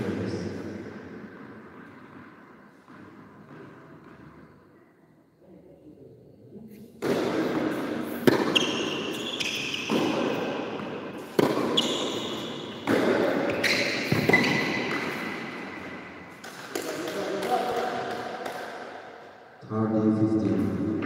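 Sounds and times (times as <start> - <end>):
shoes squeaking on court: 1.6 - 4.9, 8.2 - 16.6
tennis ball hits and bounces: 7.0 - 19.0.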